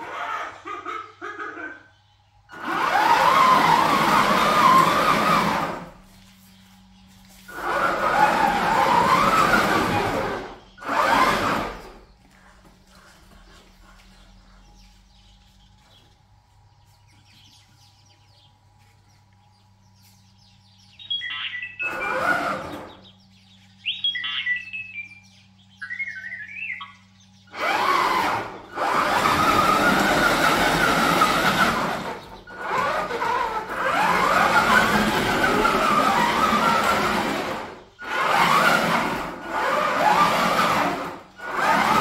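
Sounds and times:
drive motors whining: 2.5 - 16.0, 17.0 - 42.0
electronic beeps and whistles: 21.0 - 22.2, 23.9 - 25.2, 25.8 - 27.0.

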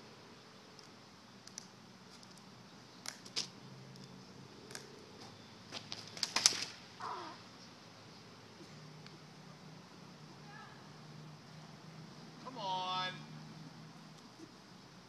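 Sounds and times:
crutches clattering on road: 3.0 - 6.8.

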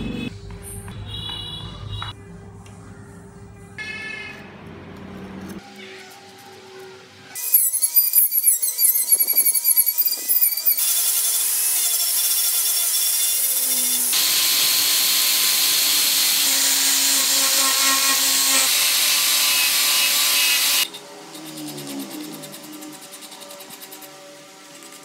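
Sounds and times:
power tools grinding wood: 7.4 - 25.0.

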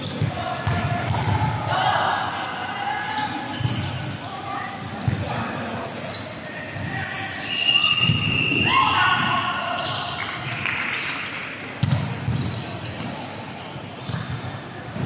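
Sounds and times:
shoes squeaking on court floor: 3.1 - 10.2, 11.8 - 15.0.

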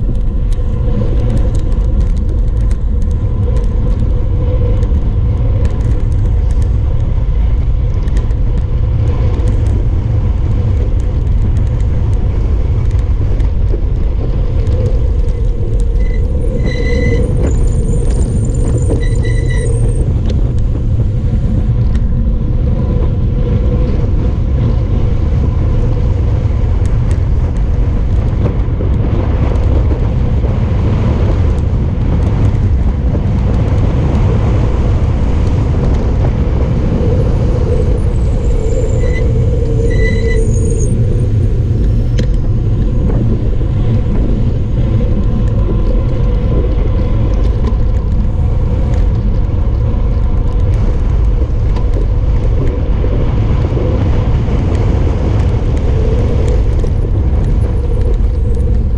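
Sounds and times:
wind buffeting microphone: 0.0 - 58.9
high-pitched squeals: 14.8 - 20.2, 37.0 - 42.6.

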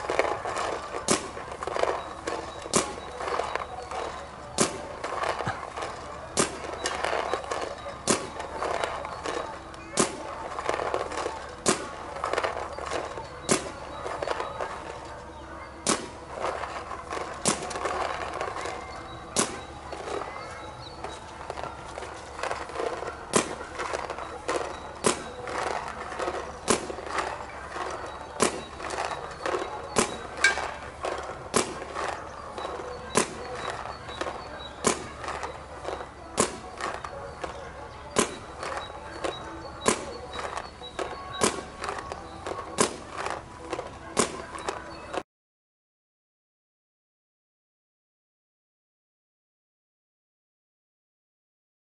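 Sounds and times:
paintball marker shots: 15.8 - 16.2, 28.4 - 32.2, 33.1 - 34.2, 34.8 - 35.6, 36.4 - 37.5, 38.2 - 38.8, 39.8 - 40.6, 41.3 - 42.1, 42.8 - 43.4
paintball marker pops: 38.2 - 38.8.

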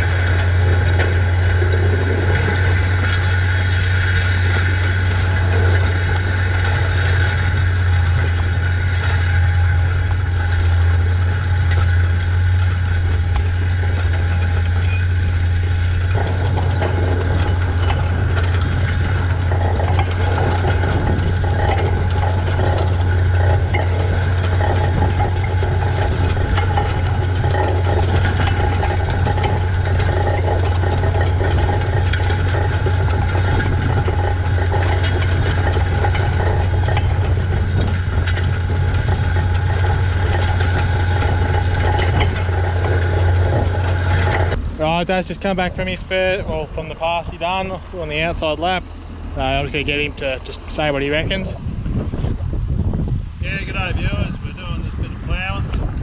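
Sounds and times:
plough discs scraping soil: 0.0 - 44.6
tractor engine under load: 0.0 - 56.0.

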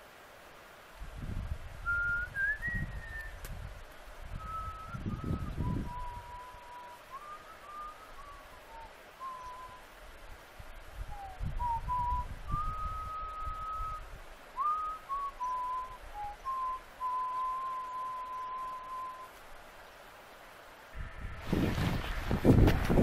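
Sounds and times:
person whistling a tune: 1.9 - 3.4, 4.4 - 9.8, 11.1 - 14.0, 14.6 - 19.3.

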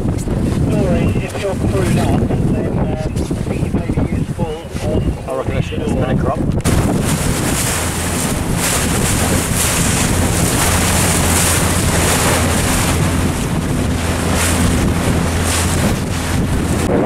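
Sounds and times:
choppy water rushing: 0.0 - 17.0
motorboat engine humming: 0.0 - 17.0
wind buffeting microphone: 0.0 - 17.0.

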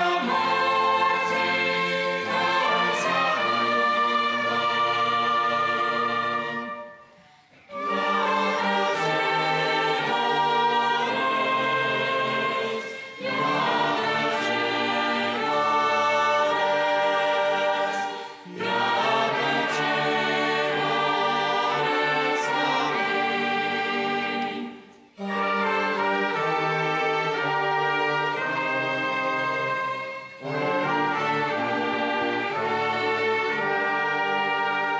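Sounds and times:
choir singing a hymn: 0.0 - 34.9
orchestra playing: 0.0 - 34.9.

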